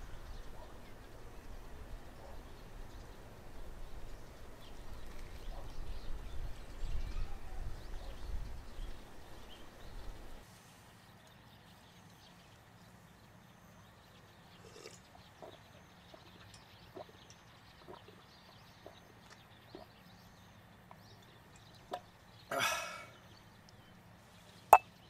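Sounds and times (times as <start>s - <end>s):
wind rumble on microphone: 0.0s - 10.4s
faint bird chirps: 4.7s - 10.1s.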